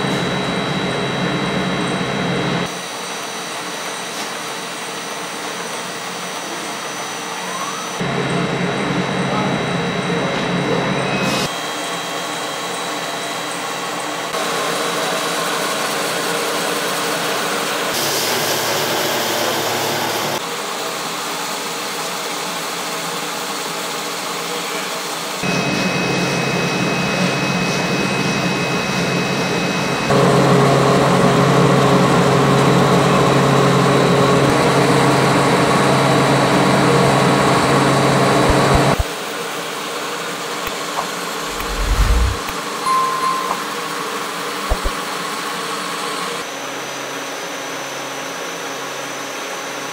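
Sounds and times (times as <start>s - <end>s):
machine humming with whining tones: 0.0s - 4.0s, 25.4s - 39.1s, 40.6s - 44.0s, 44.7s - 45.0s.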